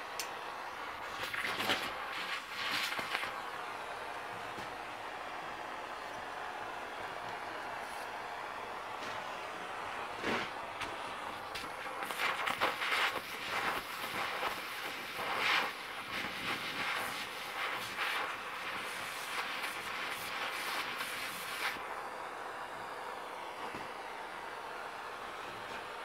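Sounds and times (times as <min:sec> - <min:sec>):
cutting torch flame hissing: 0:00.0 - 0:26.0
hot steel crackling and snapping: 0:01.0 - 0:03.4, 0:10.2 - 0:21.8.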